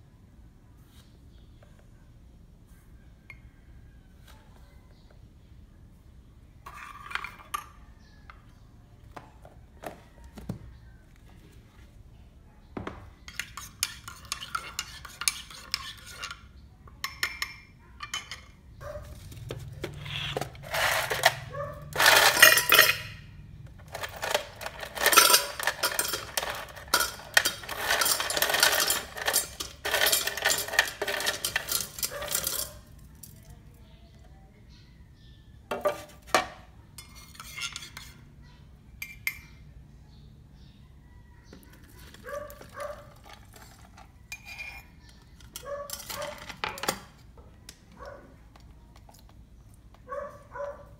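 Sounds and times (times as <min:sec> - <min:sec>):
clinking in kitchen: 0:17.0 - 0:18.6, 0:22.0 - 0:23.2, 0:23.9 - 0:32.8
contents tipped into a tumbler: 0:23.8 - 0:33.3.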